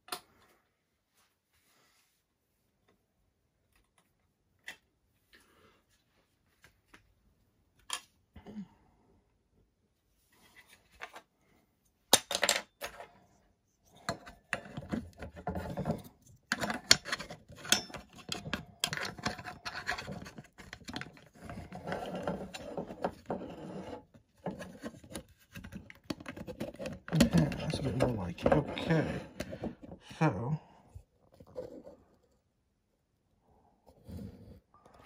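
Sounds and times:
plastic scraping against metal: 14.5 - 30.0.

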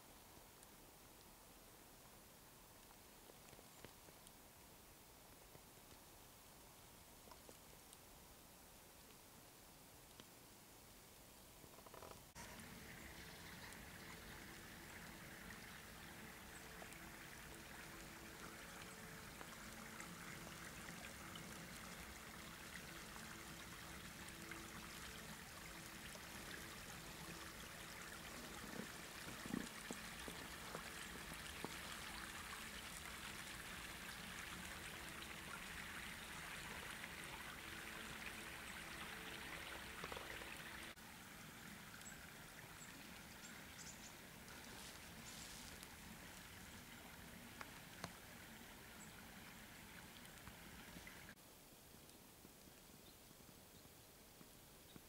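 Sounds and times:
river water flowing: 11.9 - 51.4.

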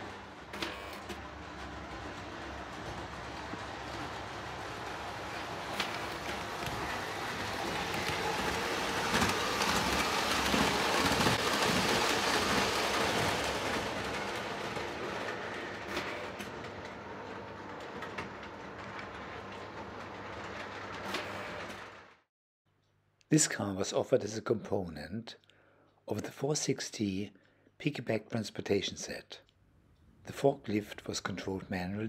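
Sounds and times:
model train rumbling clatter: 0.0 - 22.0.

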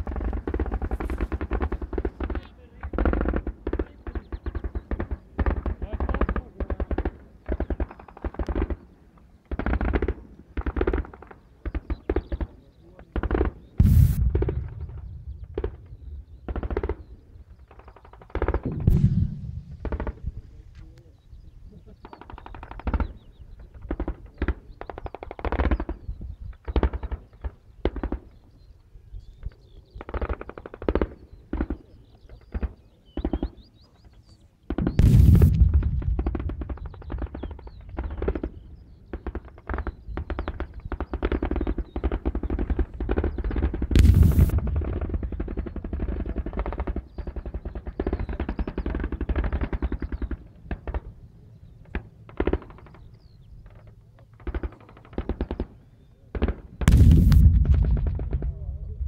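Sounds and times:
machine-gun fire: 13.2 - 17.0, 17.7 - 20.2, 34.7 - 38.5, 39.1 - 51.0, 56.4 - 58.6
loud bang: 13.8 - 16.2, 18.7 - 20.3, 34.9 - 36.6, 44.0 - 45.1, 56.9 - 58.7
low rumble: 13.8 - 16.5, 18.6 - 21.0, 34.9 - 37.0, 44.0 - 45.4, 56.9 - 59.0
automatic gunfire bursts: 39.1 - 50.4.

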